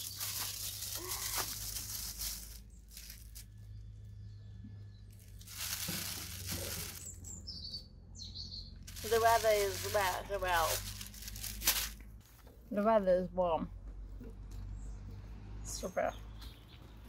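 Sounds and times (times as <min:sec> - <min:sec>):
wrapper crumpling and tearing: 0:00.0 - 0:03.6, 0:05.1 - 0:07.3, 0:08.9 - 0:12.5.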